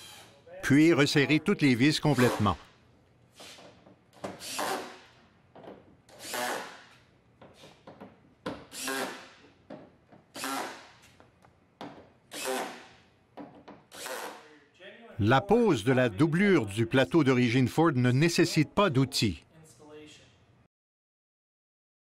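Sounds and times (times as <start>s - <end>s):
cordless drill driving screws: 4.4s - 4.8s, 8.7s - 9.3s, 10.4s - 10.8s, 12.3s - 12.8s, 13.9s - 14.4s.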